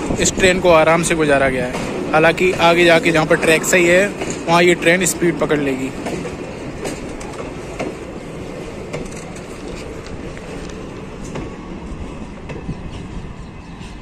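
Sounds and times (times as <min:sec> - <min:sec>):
wheels clicking on rails: 0:00.0 - 0:13.2
train rolling rumble: 0:00.0 - 0:14.0.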